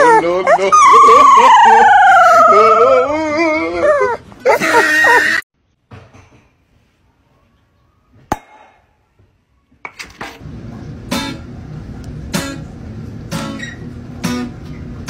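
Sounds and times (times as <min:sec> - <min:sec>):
guitar strumming: 0:11.1 - 0:11.6, 0:12.2 - 0:15.0.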